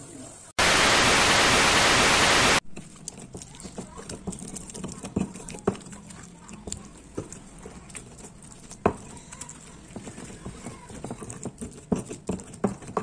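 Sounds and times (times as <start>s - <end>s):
stone pestle pounding in mortar: 9.9s - 13.0s.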